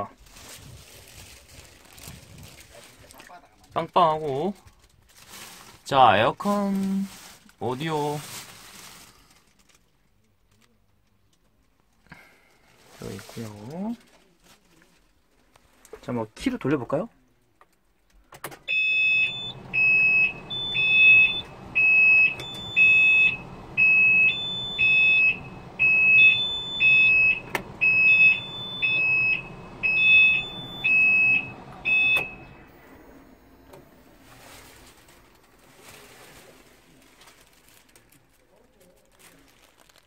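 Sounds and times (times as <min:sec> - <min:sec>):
high electronic warning beeps: 0:18.7 - 0:32.7.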